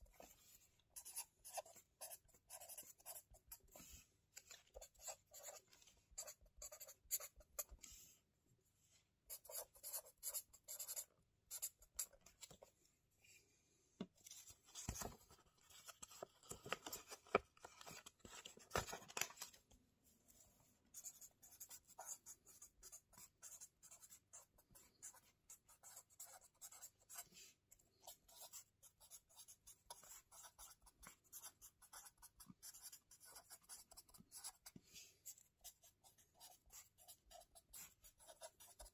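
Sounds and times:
pen scratching on paper: 1.0s - 4.0s, 4.7s - 7.7s, 9.3s - 12.6s, 20.9s - 38.9s
notebook page turning: 14.2s - 19.6s.

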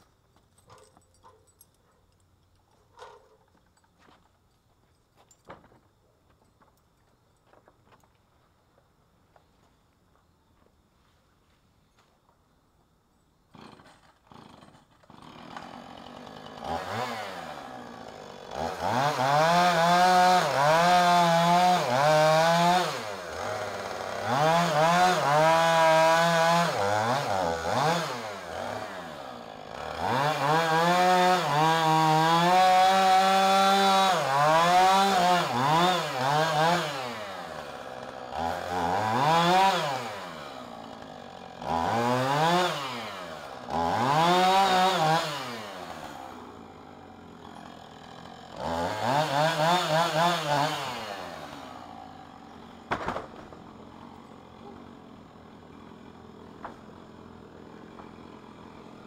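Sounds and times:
chainsaw cutting and revving: 13.5s - 59.0s.

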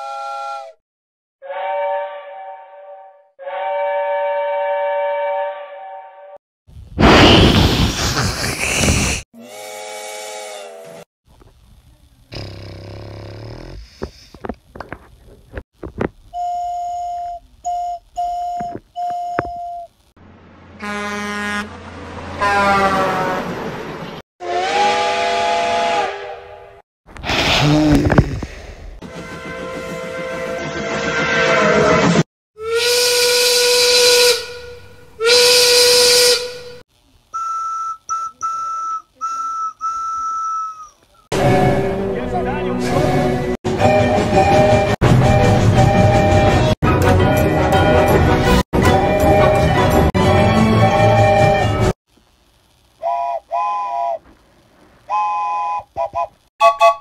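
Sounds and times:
steam hissing: 7.2s - 9.8s
sharp clicks and knocks: 14.0s - 16.2s
whistle blasts: 16.3s - 19.9s, 32.6s - 41.9s, 43.0s - 48.2s, 48.8s - 51.9s, 53.0s - 54.2s, 55.1s - 57.0s
higher thin whistle toots: 37.4s - 41.0s.

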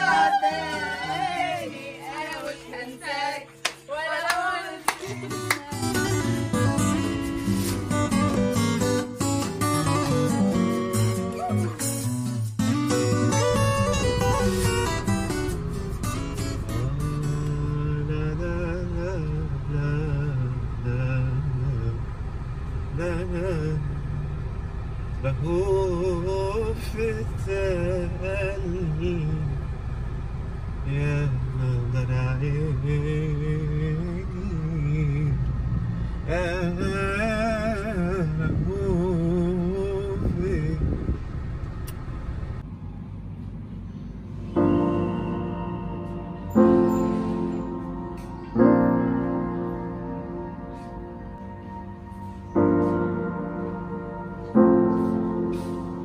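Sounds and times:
group singing over music: 0.0s - 4.8s
car road and engine noise: 0.0s - 56.0s
hand claps: 3.6s - 5.7s.

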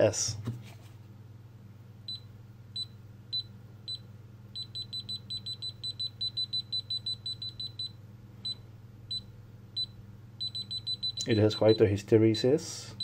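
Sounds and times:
steady low hum: 0.0s - 13.0s
multimeter beeping: 4.6s - 11.9s.

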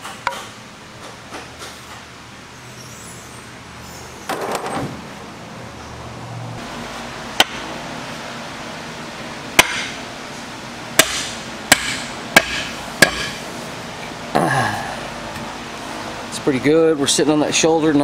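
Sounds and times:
sledgehammer knocking on wood: 11.0s - 13.4s.

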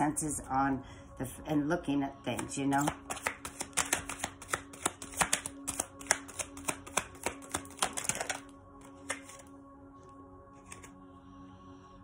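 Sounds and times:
soft background music: 0.0s - 12.0s
cards being shuffled: 2.8s - 9.5s, 10.6s - 11.0s.

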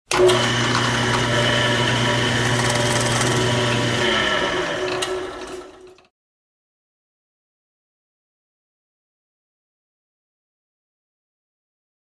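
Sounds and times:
drill press motor whining: 0.1s - 6.1s.

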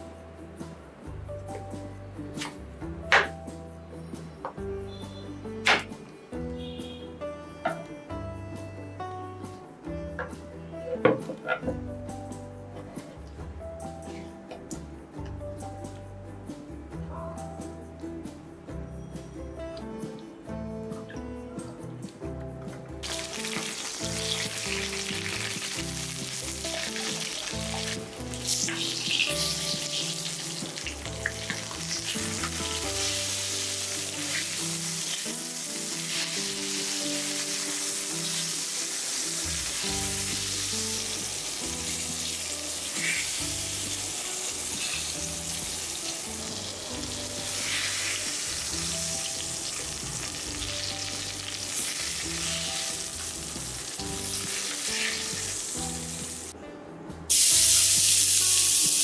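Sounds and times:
vegetables sizzling in hot oil: 23.0s - 56.5s, 57.3s - 59.0s.

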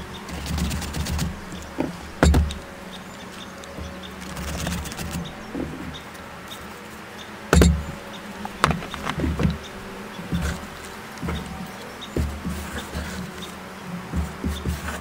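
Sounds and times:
steady low buzz: 0.0s - 14.4s
onion scraping on mandoline: 4.1s - 5.8s
knocks on cutting board: 7.6s - 7.9s.

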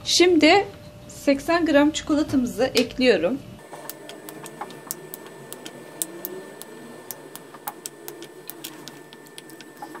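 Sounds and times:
faint high whine: 3.6s - 10.0s.

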